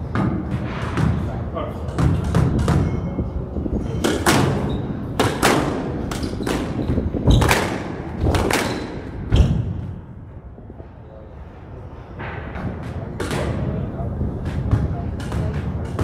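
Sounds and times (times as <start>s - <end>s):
squash ball hitting rackets and walls: 0.0s - 10.0s, 12.2s - 16.0s.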